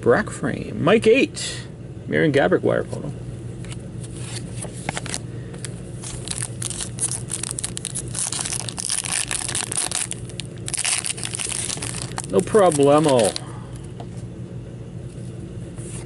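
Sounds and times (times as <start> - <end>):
foil wrapper tearing and crinkling: 6.0 - 13.4.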